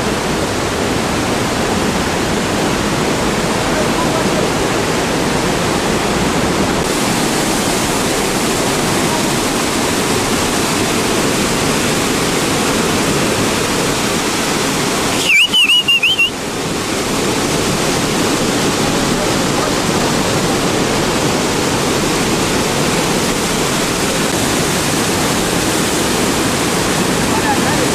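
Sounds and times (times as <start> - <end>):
waterfall roaring: 0.0 - 27.9
high warbling whistle: 15.1 - 16.4.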